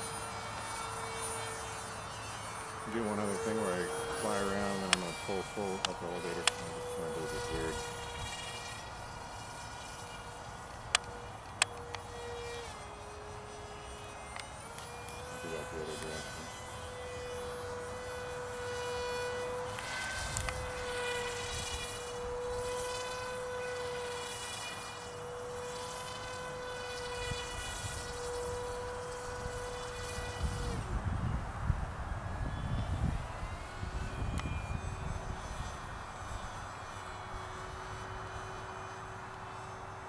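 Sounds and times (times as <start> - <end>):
electric motor and propeller whining: 0.0 - 40.0.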